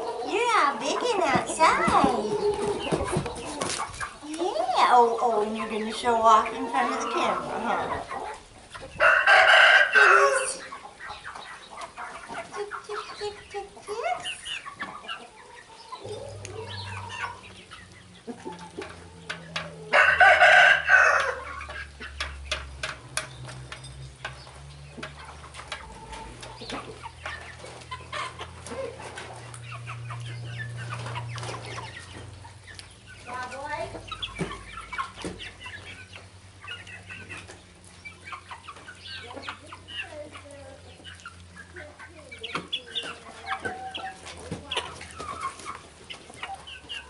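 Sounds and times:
chickens clucking: 0.0 - 47.0
rooster crowing: 9.0 - 10.6, 19.0 - 21.6
low steady hum: 15.2 - 42.4.

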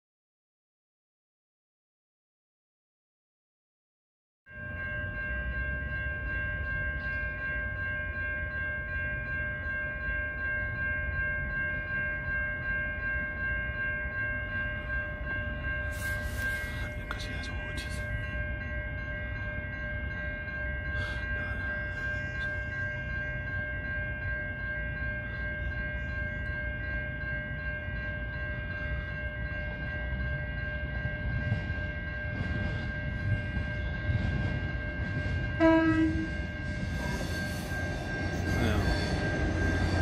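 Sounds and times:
train rumbling: 4.6 - 40.0
high-pitched whine: 15.7 - 40.0
train horn toot: 35.6 - 36.4.

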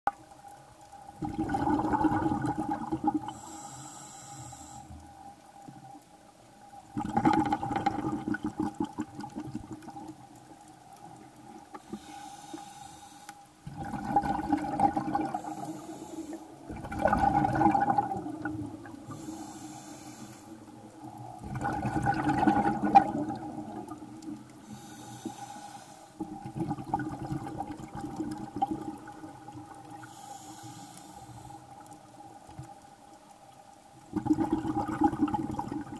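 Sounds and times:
faint steady hum: 0.1 - 35.9
exhaled bubbles rushing: 1.2 - 3.3, 6.9 - 10.2, 13.6 - 15.7, 16.6 - 19.2, 21.0 - 24.5, 26.2 - 30.0, 34.1 - 35.9
regulator inhale hiss: 3.3 - 5.1, 11.8 - 13.6, 15.3 - 16.6, 19.0 - 20.8, 24.6 - 26.3, 30.0 - 31.9.

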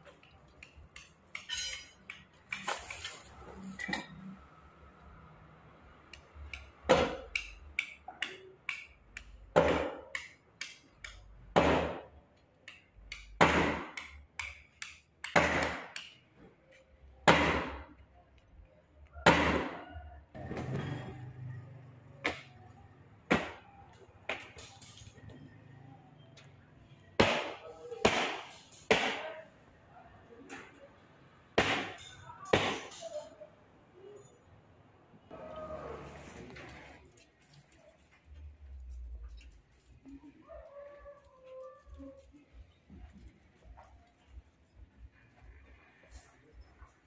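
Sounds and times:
steel chain clinking and rattling: 0.0 - 4.7, 35.4 - 47.0.

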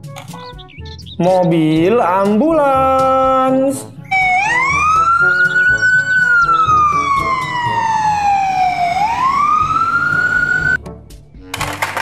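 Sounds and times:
ambulance siren wailing: 4.1 - 10.8.

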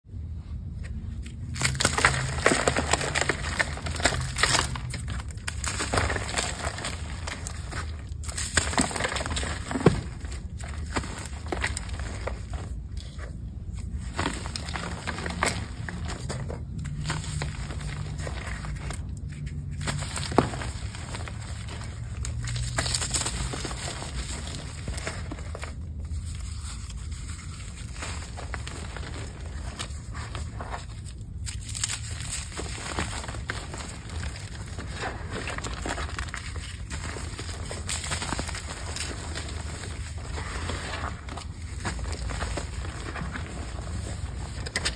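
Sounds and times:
powder blocks crunching: 1.1 - 44.9.

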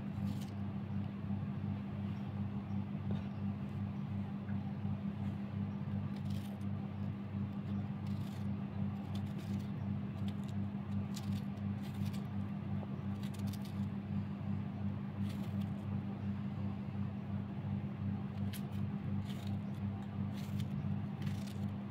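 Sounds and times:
low electrical hum: 0.0 - 21.9
knife cutting vegetables: 18.5 - 21.7.

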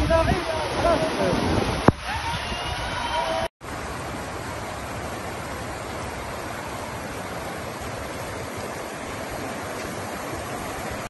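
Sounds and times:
floodwater rushing: 0.0 - 11.0.

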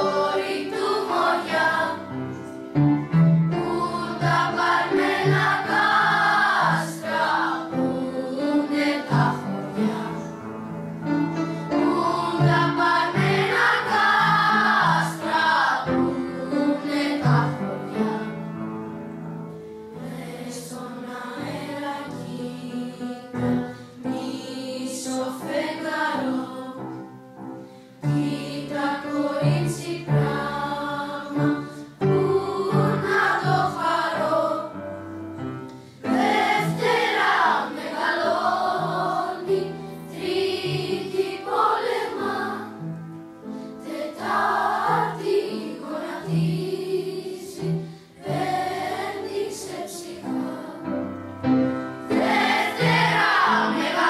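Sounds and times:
children's choir singing: 0.0 - 19.0, 19.9 - 54.0.

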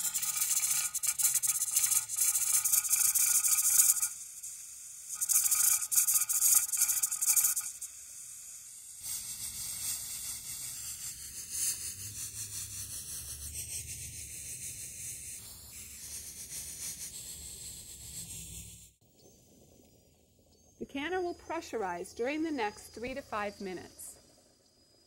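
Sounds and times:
weight hissing and fluttering: 0.0 - 8.5
canner weight rocking with hissing steam: 0.0 - 8.9.

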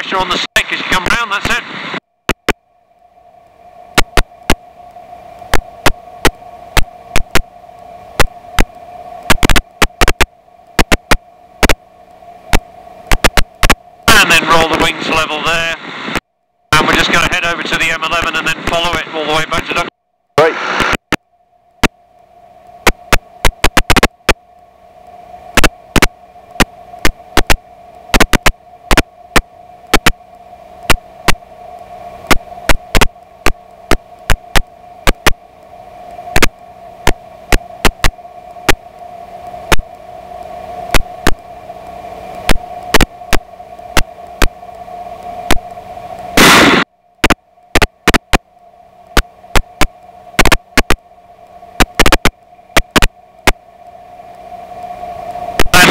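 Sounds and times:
headset intercom hum: 0.0 - 2.6, 13.1 - 21.2, 55.6 - 55.9
static clicks and crackles: 0.0 - 55.9.

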